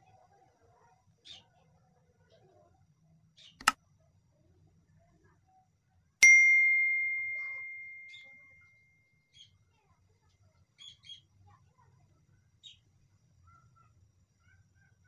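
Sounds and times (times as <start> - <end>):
notification bell ding: 6.2 - 8.6.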